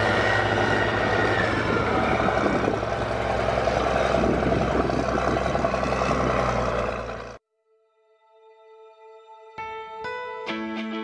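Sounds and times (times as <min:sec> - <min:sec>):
cultivator working the ground: 0:00.0 - 0:07.4
tractor diesel engine under load: 0:00.0 - 0:07.4.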